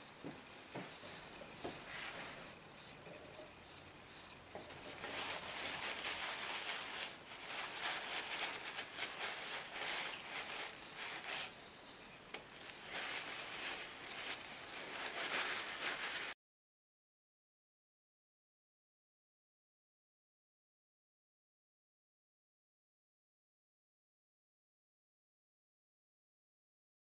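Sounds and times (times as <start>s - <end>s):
paper towel crinkling: 0.2s - 3.5s, 4.1s - 16.4s.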